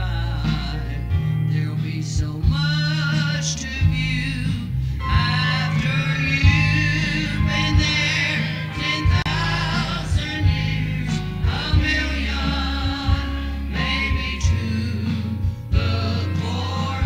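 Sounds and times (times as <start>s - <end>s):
choir singing gospel: 0.0s - 17.0s
instrumental accompaniment: 0.4s - 17.0s.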